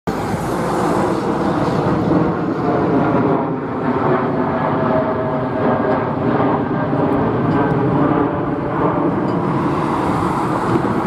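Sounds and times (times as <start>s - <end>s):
car passing by: 9.5s - 11.0s.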